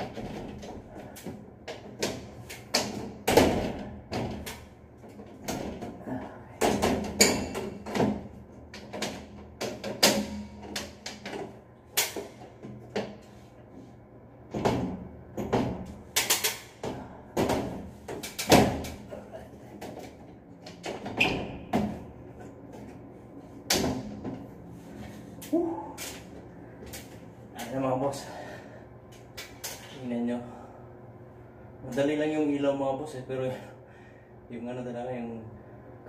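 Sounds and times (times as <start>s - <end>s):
metal slats knocking and rattling: 6.6s - 13.3s.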